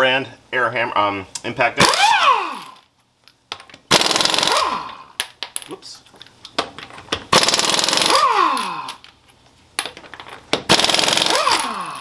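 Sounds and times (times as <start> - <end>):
air impact wrench spinning: 1.8 - 2.9, 3.9 - 5.1, 7.3 - 9.0, 10.7 - 12.0.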